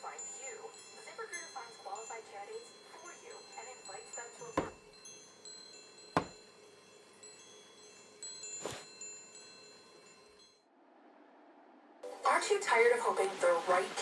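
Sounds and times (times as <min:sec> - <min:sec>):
wind chimes tinkling: 0:00.0 - 0:10.6
sharp thuds: 0:06.2 - 0:06.4.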